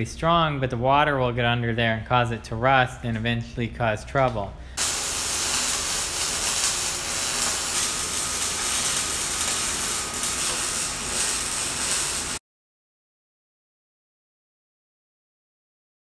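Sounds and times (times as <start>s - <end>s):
welding arc sizzling: 4.8s - 12.4s.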